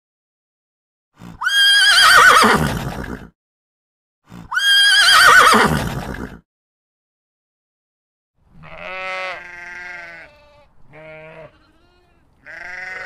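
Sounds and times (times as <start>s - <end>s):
horse whinnying: 1.2s - 3.3s, 4.3s - 6.4s.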